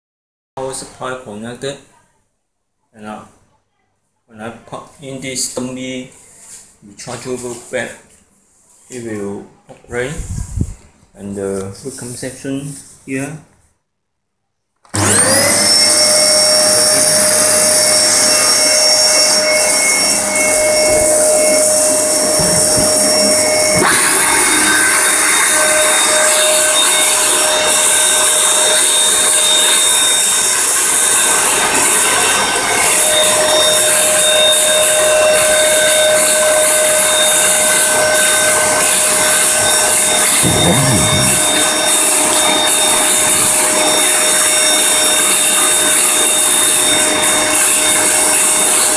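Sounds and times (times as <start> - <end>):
vacuum cleaner motor whining: 14.9 - 48.9
hiss and second whine: 16.0 - 32.0, 33.0 - 45.5.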